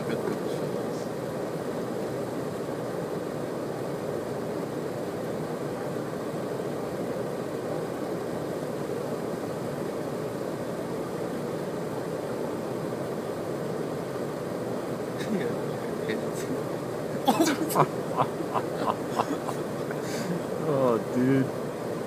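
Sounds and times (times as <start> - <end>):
idling car cabin hum: 15.1 - 21.5.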